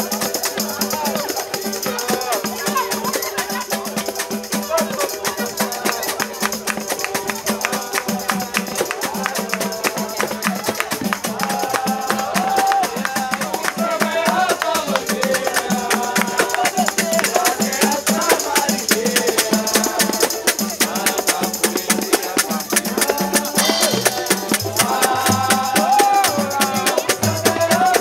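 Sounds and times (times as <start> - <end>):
hand drums playing fast rhythm: 0.0 - 28.0
person singing: 0.0 - 28.0.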